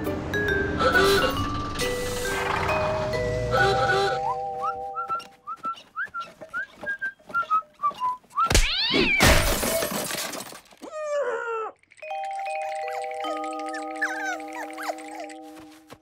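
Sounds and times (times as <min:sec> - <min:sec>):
whistled jaunty tune: 0:02.7 - 0:08.6
crash with clattering: 0:09.2 - 0:10.8.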